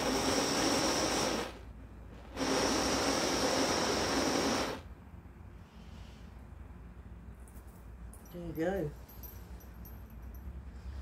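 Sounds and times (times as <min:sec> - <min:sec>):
butane torch hissing: 0:00.0 - 0:05.0.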